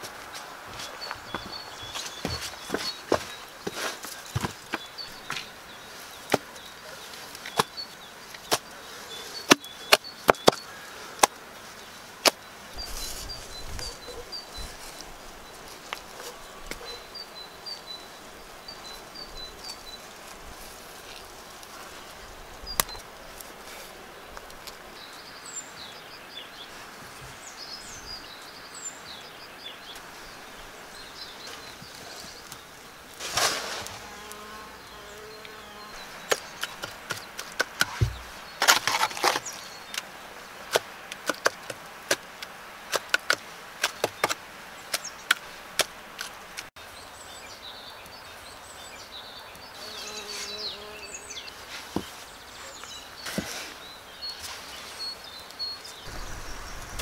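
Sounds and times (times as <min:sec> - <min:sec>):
wooden logs knocking together: 0:36.2 - 0:40.1, 0:40.7 - 0:46.7.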